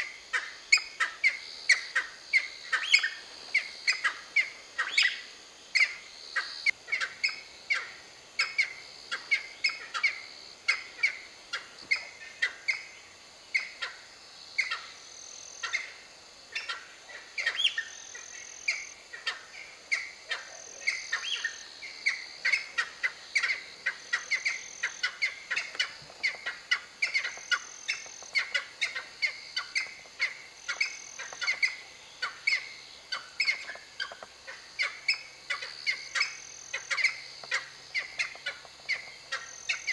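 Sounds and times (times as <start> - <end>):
birds chirping: 16.5 - 39.9.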